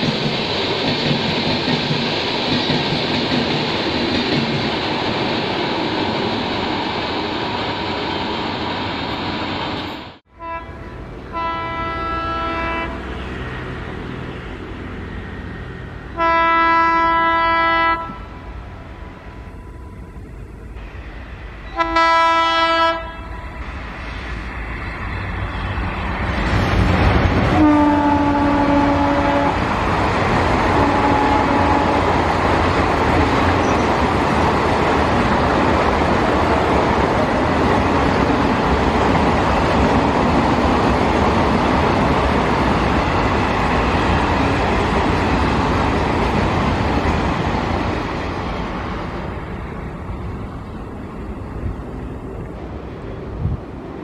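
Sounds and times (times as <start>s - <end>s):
train wheels rumbling on rails: 0.0s - 10.3s, 10.9s - 54.0s
diesel locomotive horn: 10.2s - 13.4s, 16.0s - 20.2s, 21.6s - 23.7s, 27.5s - 29.6s, 30.7s - 32.2s.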